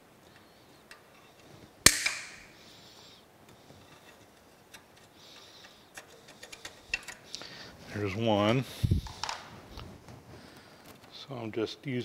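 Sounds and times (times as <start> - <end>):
sharp ringing metal snap: 1.8 - 2.5
faint metal clicks: 3.4 - 7.5.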